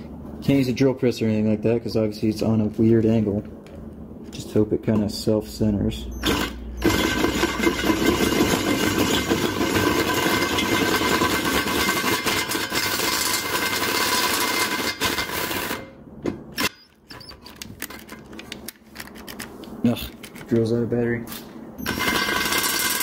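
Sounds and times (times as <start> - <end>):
cordless drill boring metal: 6.2 - 15.8.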